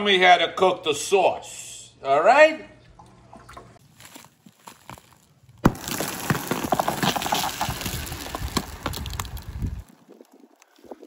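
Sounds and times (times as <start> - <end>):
ice crackling and ticking: 4.0 - 11.0
axe striking ice: 5.6 - 9.5.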